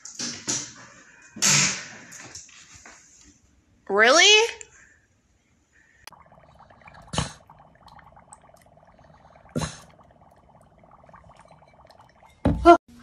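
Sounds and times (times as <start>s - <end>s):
dry ice fizzing in water: 6.1s - 12.6s.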